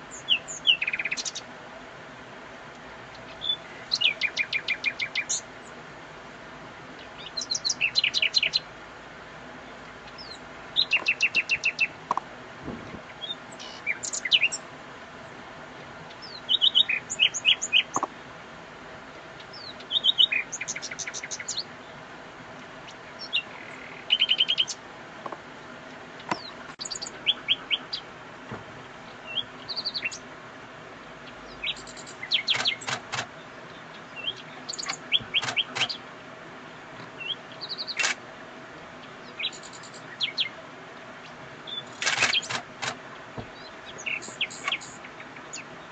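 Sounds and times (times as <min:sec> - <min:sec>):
nightingale singing: 0:00.0 - 0:01.5, 0:03.0 - 0:05.8, 0:06.9 - 0:08.7, 0:09.6 - 0:12.0, 0:12.9 - 0:14.7, 0:16.0 - 0:18.1, 0:19.4 - 0:22.0, 0:22.6 - 0:24.8, 0:26.2 - 0:28.1, 0:29.0 - 0:30.3, 0:31.0 - 0:36.1, 0:37.0 - 0:38.2, 0:38.9 - 0:42.7, 0:43.4 - 0:45.9.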